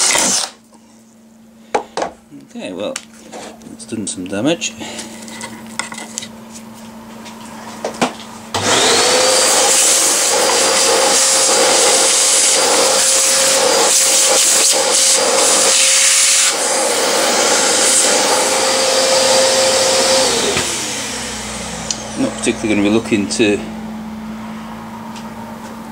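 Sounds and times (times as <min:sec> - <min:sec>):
electric drill cutting metal: 0:00.0 - 0:00.6, 0:08.6 - 0:22.5.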